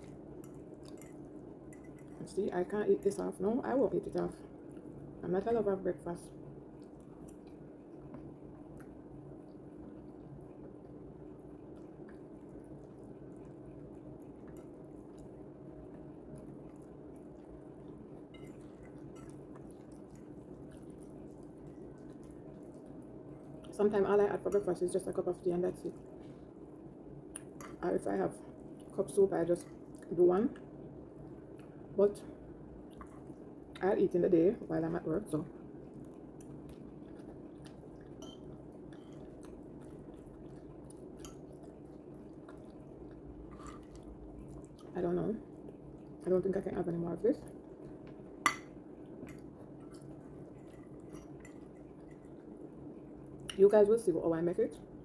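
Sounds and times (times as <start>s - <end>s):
steady low hum: 0.0s - 55.0s
person chewing food: 6.7s - 23.8s, 26.0s - 27.8s, 29.8s - 31.9s, 32.6s - 33.7s, 35.6s - 46.2s, 47.5s - 53.5s.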